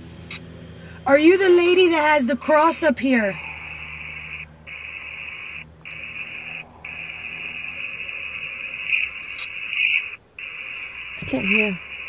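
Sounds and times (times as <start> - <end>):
radio-like static hiss: 3.4 - 12.0.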